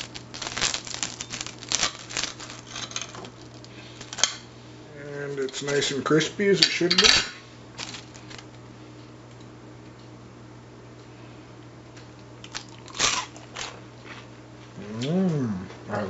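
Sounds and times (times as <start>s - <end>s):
crunching bites of fried food: 0.0s - 4.2s, 12.4s - 14.3s
steady low hum: 0.0s - 16.0s.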